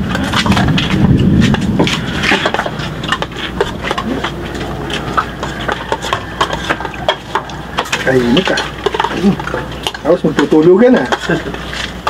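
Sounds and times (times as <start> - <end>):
muffled low rumble: 0.0 - 5.4
utensils clinking against plates: 0.0 - 12.0.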